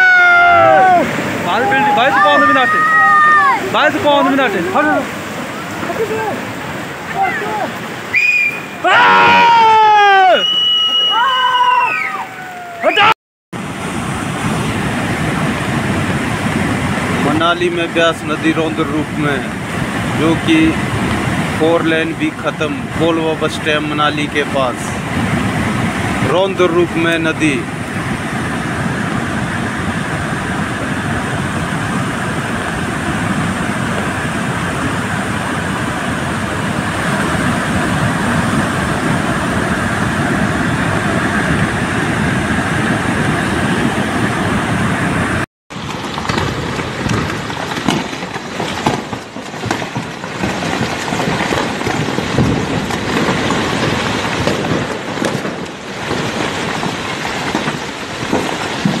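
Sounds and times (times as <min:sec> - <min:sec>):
river rushing: 0:00.0 - 0:59.0
landslide rumble with knocks: 0:13.6 - 0:59.0.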